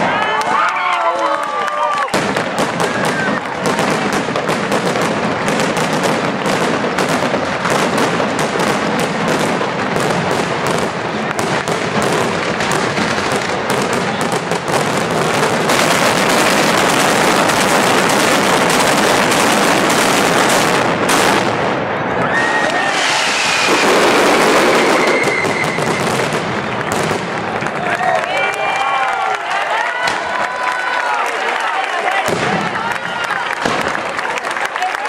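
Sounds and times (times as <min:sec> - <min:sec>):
firecrackers: 0:00.0 - 0:31.1, 0:32.1 - 0:35.0
fireworks exploding: 0:02.0 - 0:28.3, 0:32.2 - 0:34.4.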